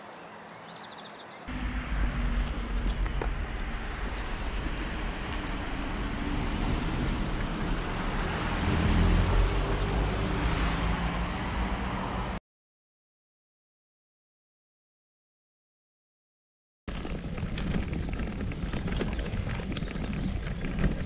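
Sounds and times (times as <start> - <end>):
road traffic rumble: 0.0 - 12.4, 16.9 - 21.0.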